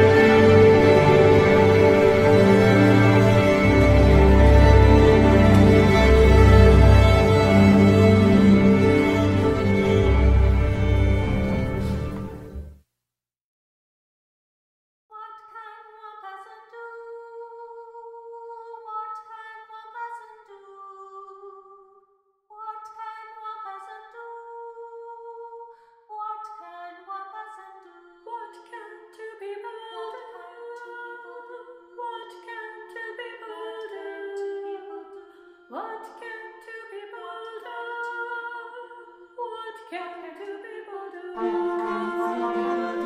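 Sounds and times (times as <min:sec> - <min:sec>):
second woman singing harmony: 0:00.0 - 0:09.9, 0:39.8 - 0:43.0
woman singing unaccompanied: 0:15.1 - 0:21.8, 0:22.5 - 0:43.0.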